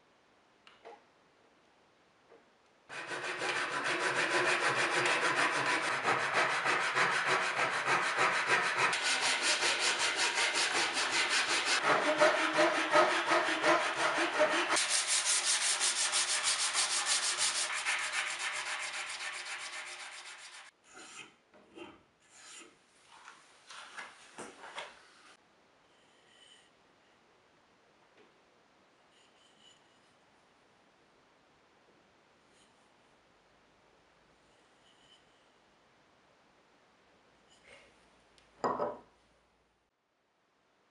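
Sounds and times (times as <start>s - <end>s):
hand saw cutting wood: 2.9s - 20.7s.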